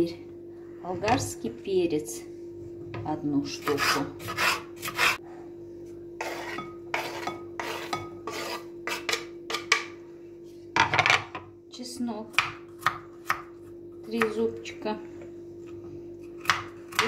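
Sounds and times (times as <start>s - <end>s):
knife cutting on wooden board: 3.6s - 5.2s
knife scraping board: 3.6s - 5.2s, 6.2s - 9.2s.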